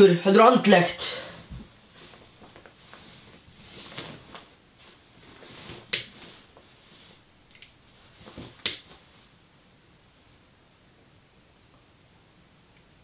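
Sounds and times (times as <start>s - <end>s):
bedding rustling: 0.7s - 9.6s.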